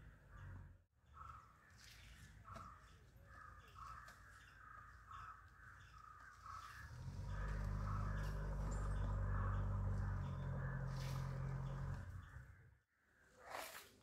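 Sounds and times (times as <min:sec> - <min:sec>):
faint crows cawing: 0:00.0 - 0:13.3.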